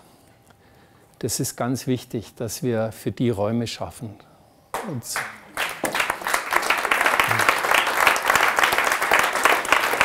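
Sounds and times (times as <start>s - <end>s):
audience applauding: 4.8s - 10.0s.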